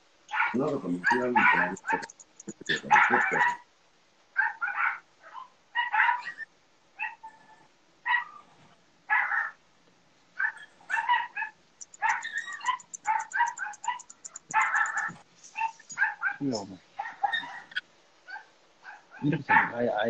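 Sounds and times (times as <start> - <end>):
dogs whining and yipping: 10.4 - 16.2, 17.2 - 17.8.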